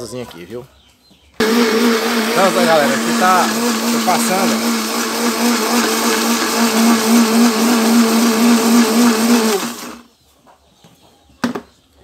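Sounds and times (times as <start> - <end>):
electric blender running: 1.4 - 10.0
blender motor winding down: 1.4 - 10.1.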